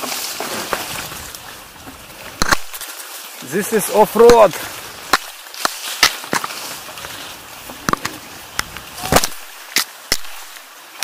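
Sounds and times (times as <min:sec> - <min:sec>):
twigs and branches snapping: 0:02.3 - 0:03.1, 0:04.2 - 0:07.2, 0:07.8 - 0:11.0.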